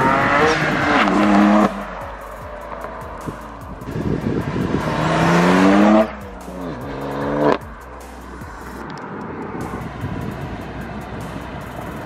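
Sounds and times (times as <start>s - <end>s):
car engine revving past: 0.0s - 8.8s.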